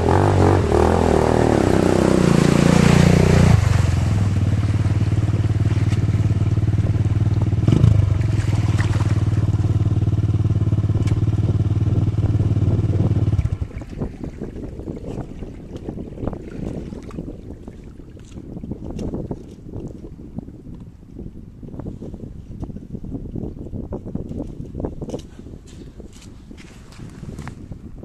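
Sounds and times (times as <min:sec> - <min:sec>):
atv engine: 0:00.0 - 0:13.8
water splashing: 0:00.1 - 0:11.8, 0:13.2 - 0:18.4
flowing water rushing: 0:01.1 - 0:09.7.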